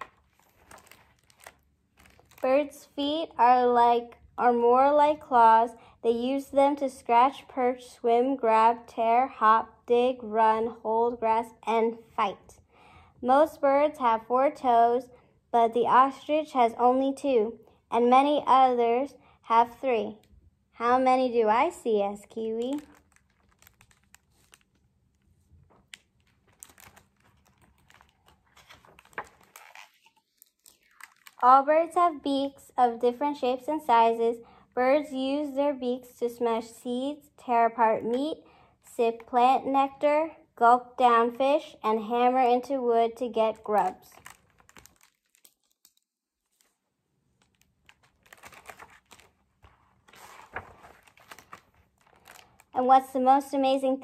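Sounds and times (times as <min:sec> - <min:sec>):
page turning: 0:00.0 - 0:02.5, 0:22.5 - 0:31.4, 0:43.6 - 0:52.7
paper rustling: 0:00.0 - 0:02.6, 0:22.5 - 0:31.4, 0:43.5 - 0:52.8.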